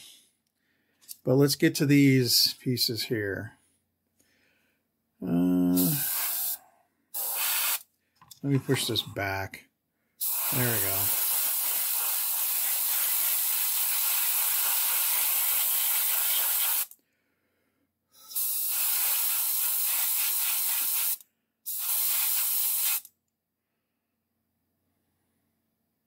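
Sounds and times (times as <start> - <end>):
airbrush spraying hiss: 5.7 - 6.6, 7.2 - 7.8, 10.2 - 16.9, 18.4 - 23.1.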